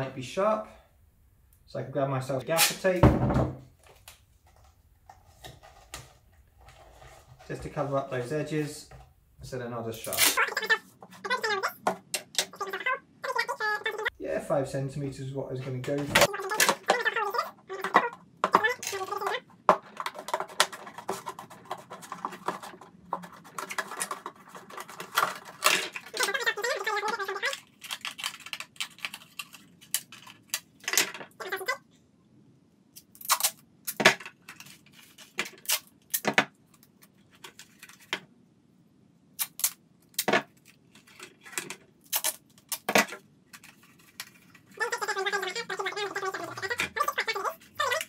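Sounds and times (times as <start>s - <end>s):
plastic pieces clicking and knocking: 16.2s - 31.6s.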